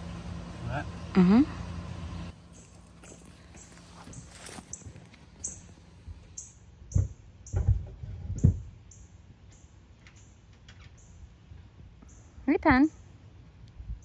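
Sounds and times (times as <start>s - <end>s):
small bird chirping: 2.5s - 7.6s, 8.4s - 11.3s.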